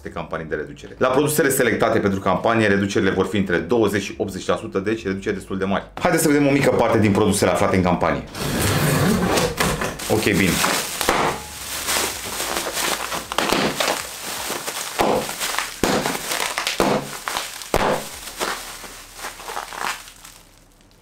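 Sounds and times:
bubble wrap crinkling: 10.0s - 21.0s
bubble wrap sharp cracks: 10.0s - 21.0s.

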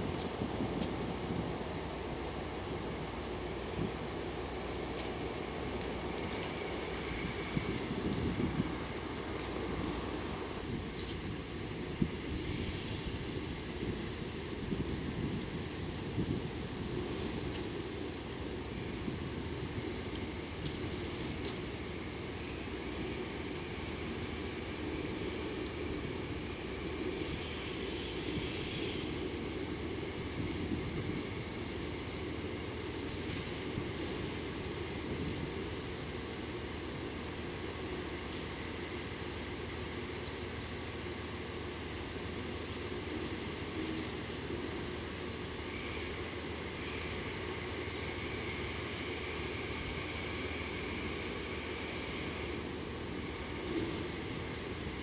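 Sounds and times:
locomotive engine rumble: 0.0s - 55.0s
high-pitched whine: 2.0s - 55.0s
thin high whine: 20.8s - 37.4s.

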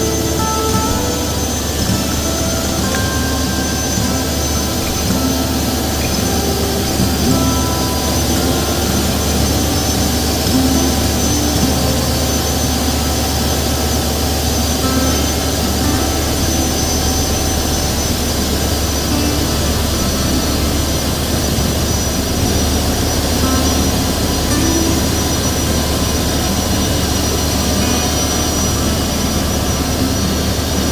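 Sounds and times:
motorboat engine drone: 0.0s - 30.9s
river water rushing: 0.0s - 30.9s.

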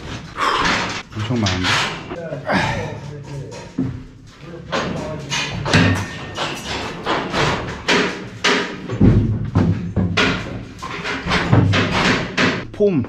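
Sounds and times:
form panels knocking and thudding: 3.4s - 12.7s.

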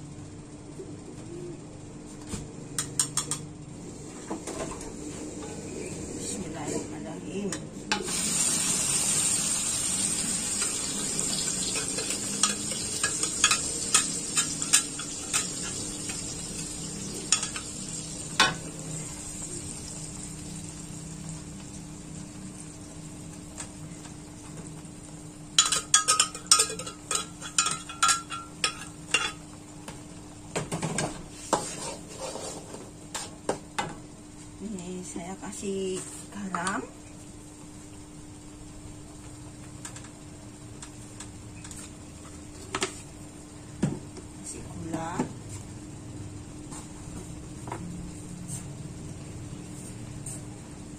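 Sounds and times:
spice paste sizzling in hot oil: 8.0s - 23.4s
spatula clinking and scraping wok: 25.6s - 29.4s.

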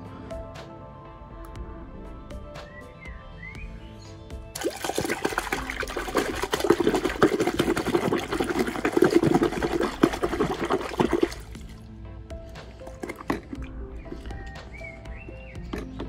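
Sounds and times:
water splashing in a bucket: 4.6s - 11.9s, 12.6s - 14.8s.

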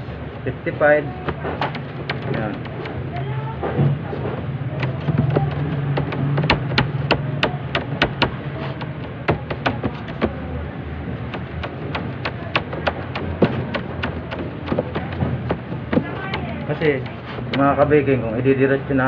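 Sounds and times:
hands patting dough on metal: 1.0s - 3.2s, 4.8s - 10.5s, 11.2s - 17.9s.

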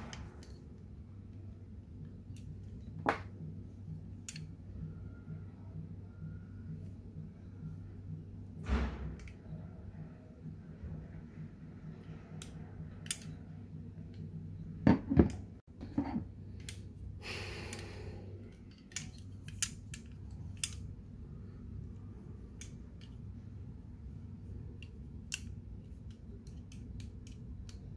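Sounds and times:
steady low hum: 0.0s - 27.9s.

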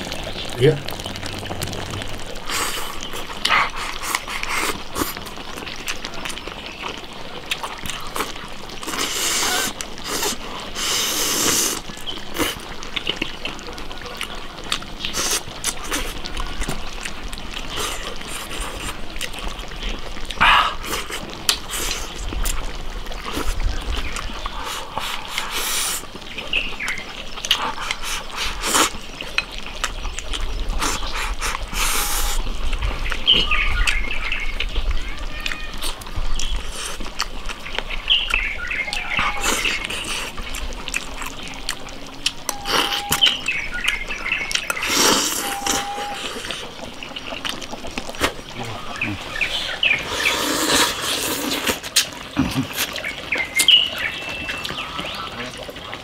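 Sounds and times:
man chewing: 0.0s - 13.2s, 14.1s - 26.2s, 26.9s - 34.0s, 35.4s - 38.4s, 39.2s - 53.1s
man slurping: 0.6s - 5.2s, 7.9s - 12.7s, 15.1s - 16.2s, 24.6s - 26.1s, 27.5s - 29.0s, 30.8s - 32.5s, 44.8s - 46.8s, 47.5s - 53.0s.

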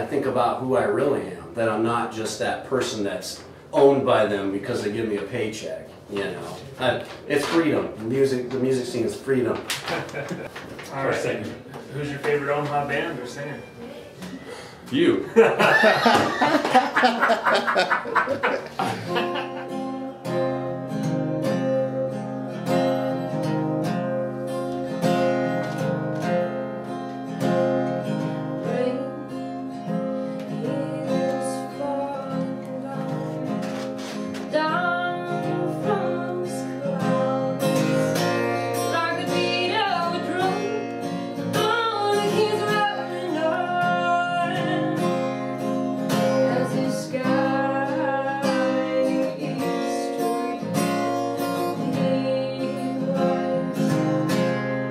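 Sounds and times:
acoustic guitar strumming: 15.4s - 54.9s
woman singing: 28.4s - 33.8s, 34.4s - 54.8s.

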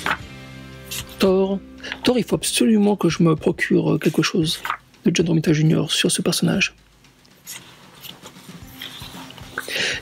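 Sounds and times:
book pages turning: 0.0s - 1.3s, 4.0s - 4.8s, 7.2s - 10.0s.

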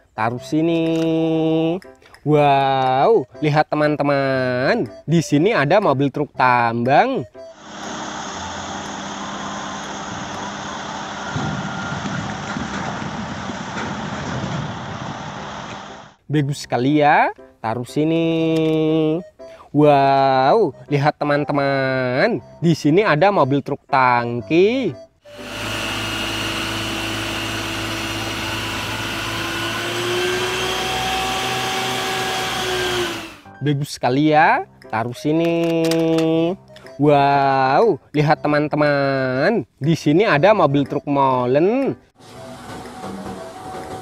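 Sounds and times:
pump whine: 7.4s - 16.2s, 25.2s - 33.5s, 42.2s - 44.0s
diesel engine running: 7.6s - 16.2s, 25.3s - 33.5s
high-pressure water jet hissing: 7.6s - 16.2s, 25.3s - 33.4s.

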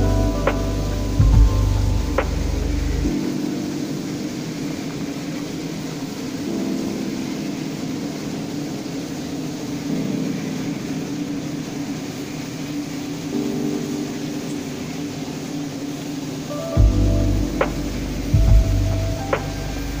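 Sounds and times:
sustained low music chords: 0.0s - 3.7s, 16.8s - 20.0s
steady hiss: 0.0s - 20.0s.

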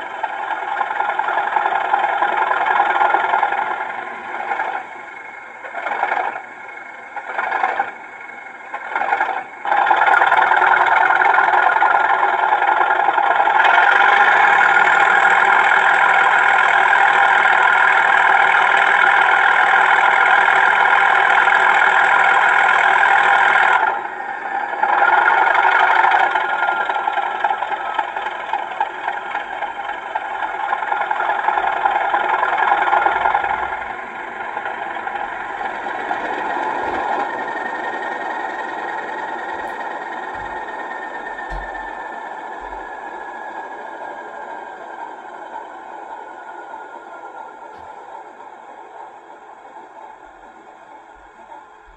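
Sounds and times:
diesel engine starting and idling: 0.0s - 51.9s.

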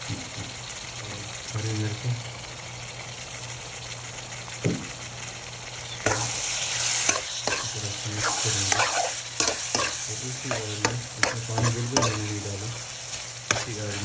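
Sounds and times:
vegetables sizzling in oil: 0.0s - 14.0s
metal spoon scraping pan: 6.1s - 12.5s, 13.5s - 14.0s.

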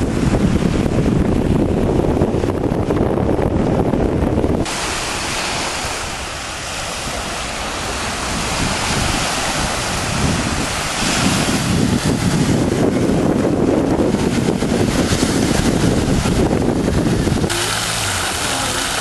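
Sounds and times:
wind rumbling on microphone: 0.0s - 19.0s
small waves breaking on sand: 4.6s - 19.0s.

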